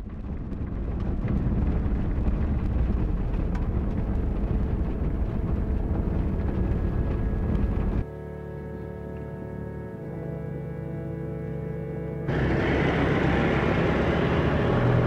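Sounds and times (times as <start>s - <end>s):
vehicle engine and road rumble: 0.0s - 15.0s.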